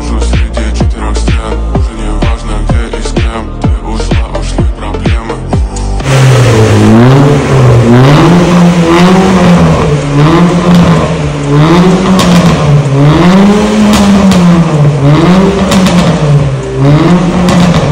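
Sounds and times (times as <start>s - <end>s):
car engine revving: 0.0s - 17.9s.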